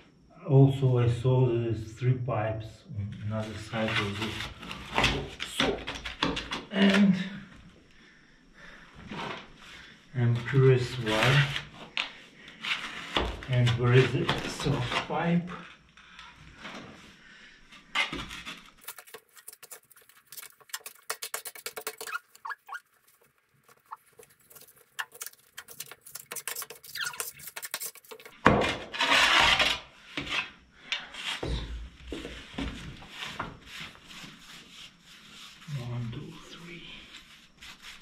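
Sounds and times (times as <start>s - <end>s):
spade crunching scoop: 18.8s - 28.4s.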